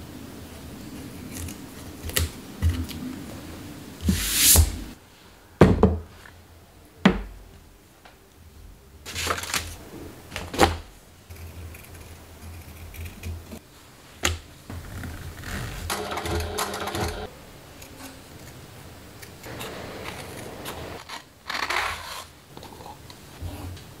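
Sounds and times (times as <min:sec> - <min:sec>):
brushing shavings off table: 0:04.0 - 0:04.9
knocks and thuds on tabletop: 0:05.6 - 0:06.0.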